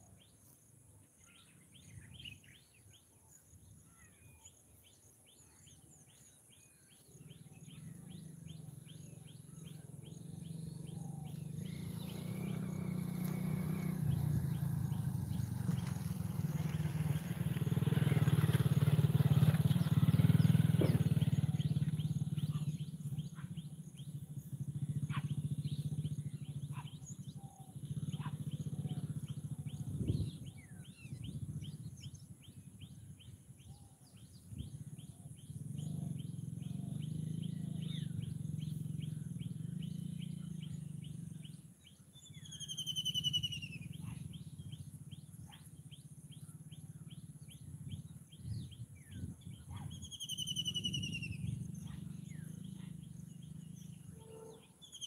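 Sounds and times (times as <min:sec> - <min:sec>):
motor vehicle passing by: 0:06.9 - 0:55.0
small bird chirps: 0:19.2 - 0:55.0.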